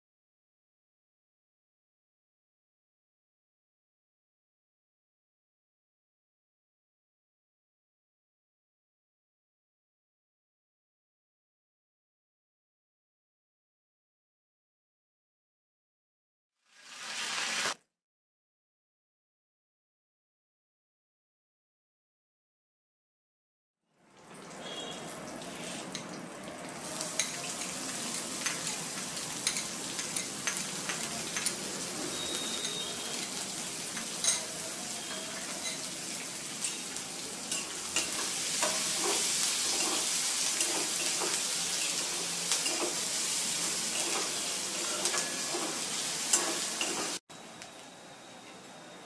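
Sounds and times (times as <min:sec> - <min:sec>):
hot oil sizzling: 0:16.6 - 0:17.8, 0:24.1 - 0:47.2
onions frying: 0:16.6 - 0:17.8, 0:24.3 - 0:47.2.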